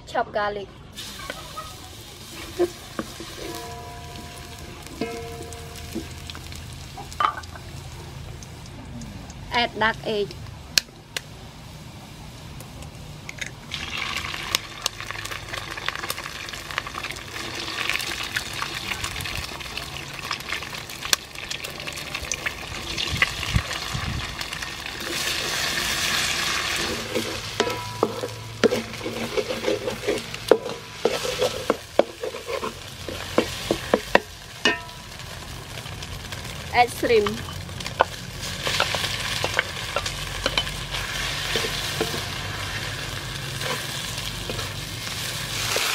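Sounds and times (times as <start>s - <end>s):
eggs sizzling in hot oil: 0.9s - 45.9s
wooden spatula scraping a wok: 1.2s - 6.6s, 25.0s - 34.8s, 37.3s - 45.9s.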